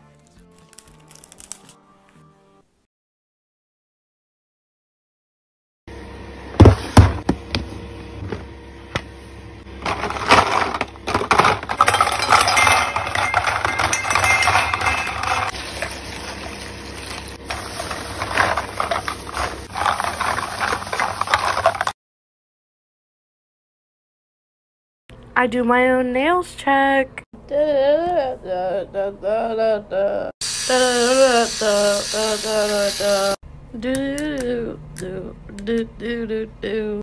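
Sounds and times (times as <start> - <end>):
plastic pieces rattling in metal bowl: 9.8 - 22.0.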